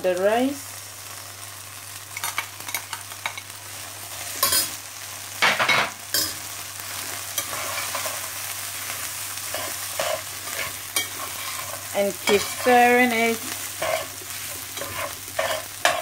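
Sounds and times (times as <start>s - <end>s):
food sizzling in a pan: 0.0s - 16.0s
spatula scraping a pan: 7.3s - 16.0s.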